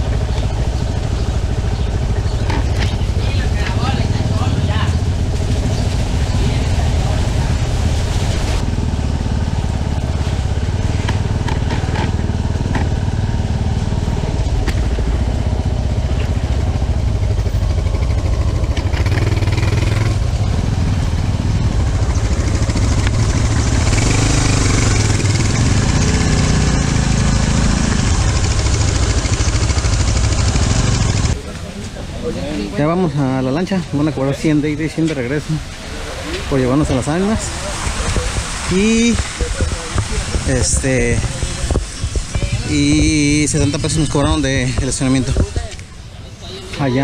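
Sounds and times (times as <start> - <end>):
motorcycle engine running: 0.0 - 31.9, 37.4 - 46.4
loud hiss: 37.4 - 44.6.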